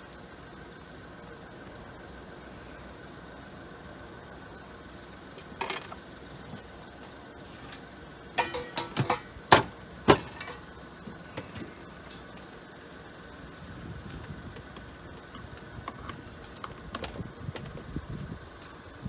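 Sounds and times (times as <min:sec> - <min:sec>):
steady low hum: 0:00.0 - 0:19.0
ladle clinking against pots and bowls: 0:08.4 - 0:09.3.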